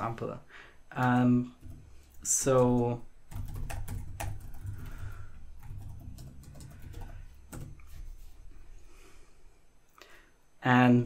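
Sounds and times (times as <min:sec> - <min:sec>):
typing on a keyboard: 0:01.0 - 0:08.0.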